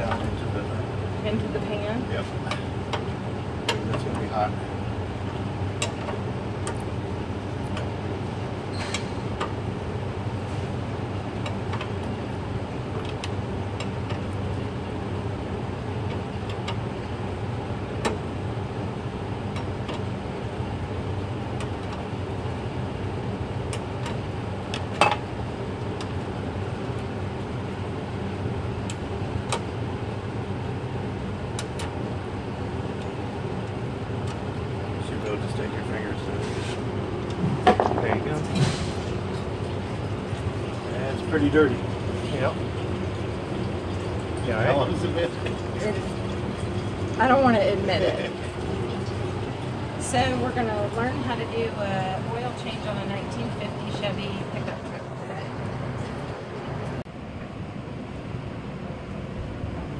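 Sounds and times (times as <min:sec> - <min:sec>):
garage background hum: 0:00.0 - 0:59.9.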